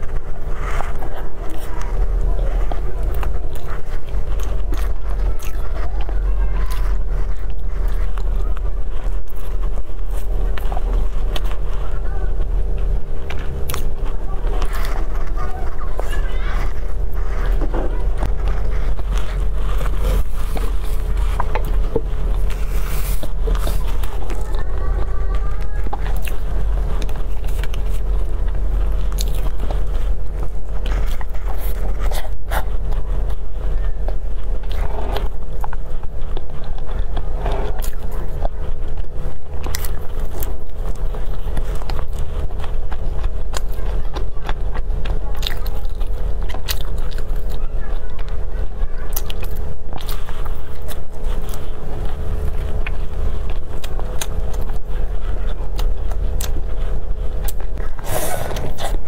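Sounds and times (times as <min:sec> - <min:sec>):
chewing: 0:00.0 - 0:59.0
crisp bread crunching: 0:00.0 - 0:59.0
steady low hum: 0:00.0 - 0:59.0.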